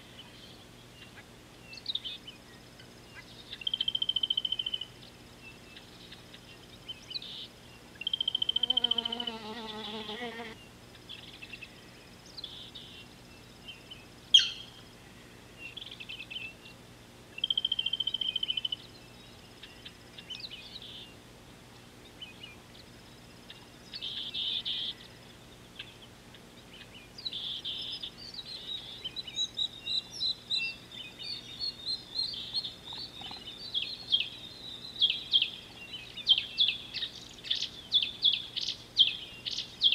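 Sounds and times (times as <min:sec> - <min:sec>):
birds buzzy trills: 0:00.0 - 0:21.2
faint steady hum: 0:00.0 - 0:39.9.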